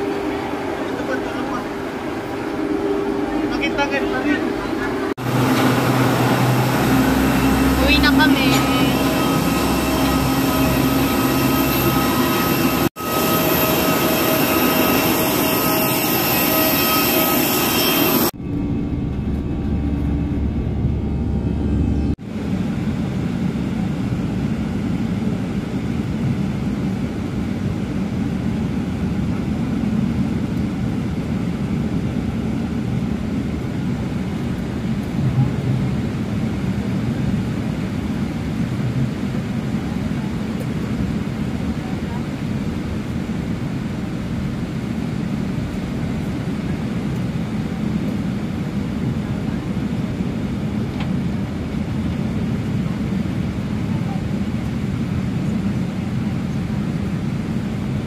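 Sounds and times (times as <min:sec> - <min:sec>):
high whining tones: 0:00.0 - 0:22.2
airliner cabin roar: 0:00.0 - 0:58.0
deep rumble: 0:18.3 - 0:22.2.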